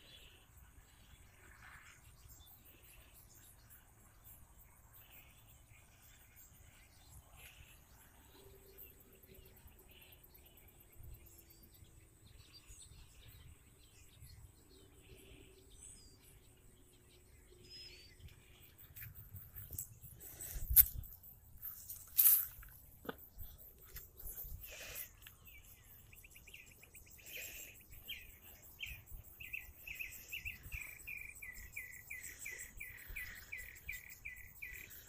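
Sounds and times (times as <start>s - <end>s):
faint high chirps: 17.2s - 35.0s.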